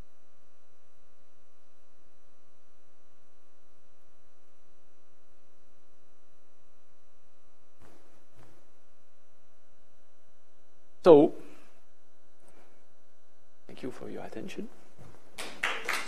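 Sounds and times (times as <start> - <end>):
electrical mains hum: 0.0 - 16.0
microphone handling noise: 7.8 - 8.8, 14.7 - 15.4.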